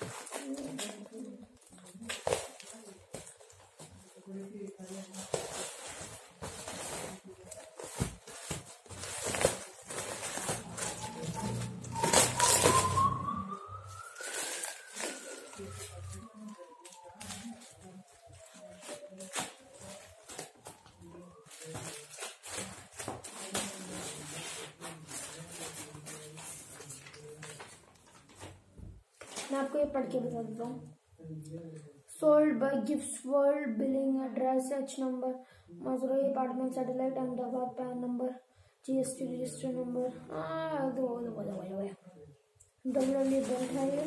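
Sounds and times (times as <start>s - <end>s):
plastic bag rustling and crinkling: 0.0s - 29.8s, 42.9s - 44.0s
scissors cutting plastic bag: 5.0s - 13.2s.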